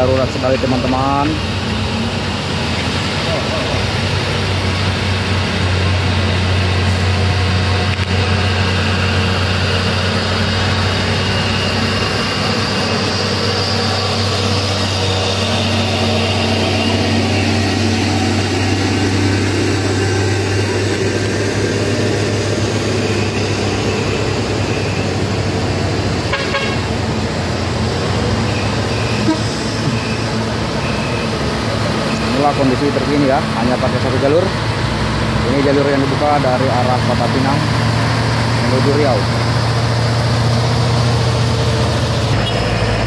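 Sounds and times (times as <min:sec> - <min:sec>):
diesel truck engine drone: 0:00.0 - 0:43.0
road traffic passing: 0:00.0 - 0:43.0.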